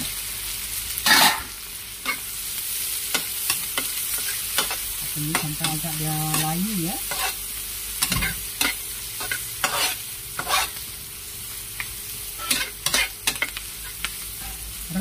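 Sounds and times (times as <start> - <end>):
aromatics sizzling in hot oil: 0.0 - 15.0
metal spatula scraping a wok: 1.0 - 1.5, 6.3 - 7.4, 8.0 - 10.8, 12.4 - 14.6.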